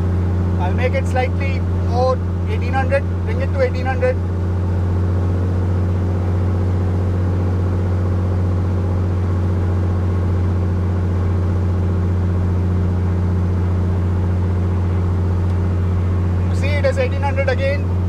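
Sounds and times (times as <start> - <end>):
aircraft engine and propeller running: 0.0 - 18.0.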